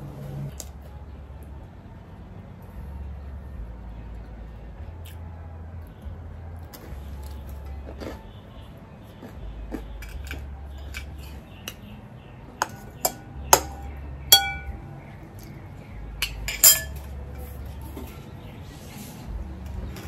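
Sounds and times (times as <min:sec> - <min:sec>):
cutlery clinking against dish: 0:12.6 - 0:14.8, 0:16.2 - 0:17.1.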